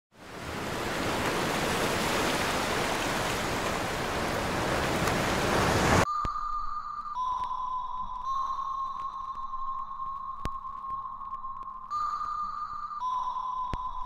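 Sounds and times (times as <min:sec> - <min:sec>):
ocean waves breaking: 0:00.1 - 0:06.0
high electronic tone: 0:06.0 - 0:14.0.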